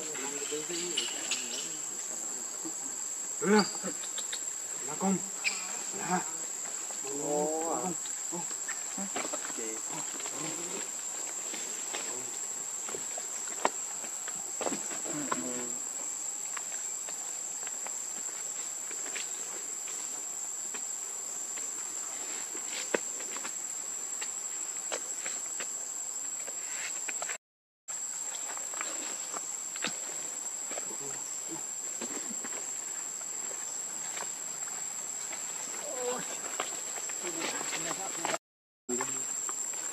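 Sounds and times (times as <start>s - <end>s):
high-pitched insect drone: 0.0s - 27.3s.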